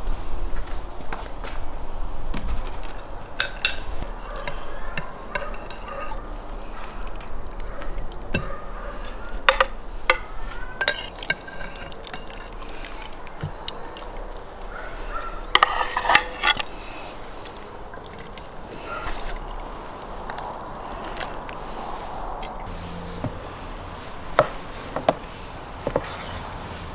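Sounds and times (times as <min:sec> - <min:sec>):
metal skimmer clinking on pot: 0:03.4 - 0:19.4.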